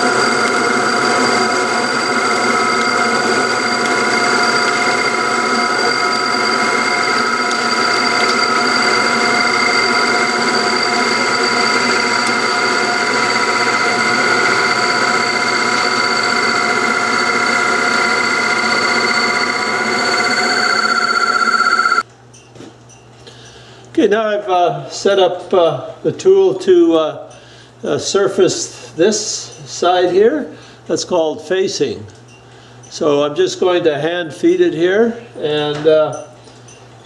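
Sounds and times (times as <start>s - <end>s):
metal lathe whine: 0.0s - 22.1s.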